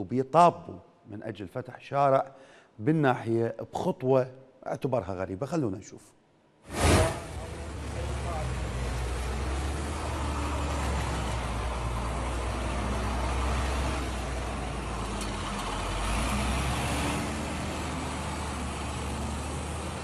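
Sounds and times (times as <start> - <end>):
diesel engine rumbling: 6.8 - 20.0.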